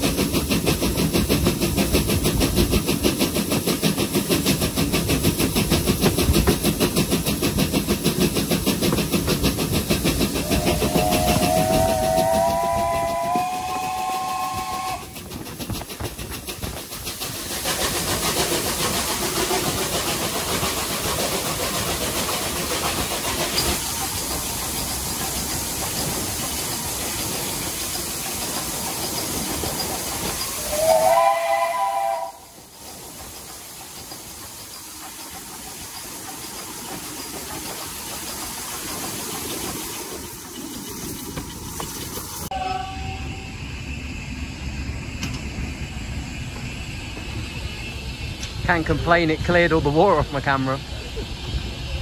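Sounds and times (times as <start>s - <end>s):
train running through tunnel: 0.0s - 52.0s
steam locomotive whistle: 10.3s - 15.2s, 30.5s - 32.6s, 42.5s - 43.9s.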